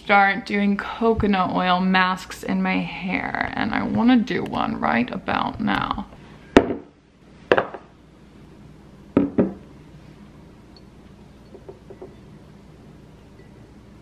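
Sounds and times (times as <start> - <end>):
glass jar knocking on countertop: 9.2 - 9.6, 11.5 - 12.2.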